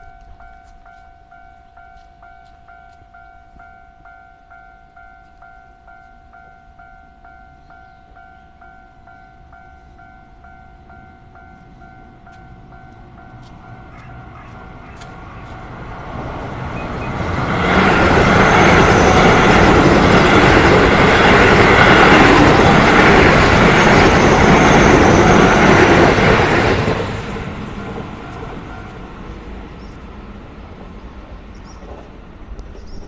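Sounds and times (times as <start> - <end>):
crossing warning signal tones: 0.0 - 26.8, 28.1 - 30.0
train wheels rumbling on rails: 10.8 - 33.0.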